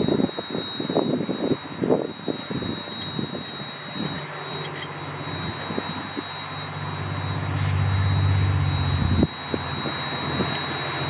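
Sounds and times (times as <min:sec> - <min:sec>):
diesel locomotive engine humming: 0:00.0 - 0:11.0.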